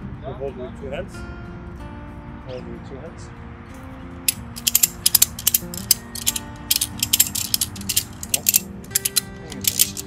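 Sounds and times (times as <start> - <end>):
ratchet pawl clicking: 4.3 - 10.0.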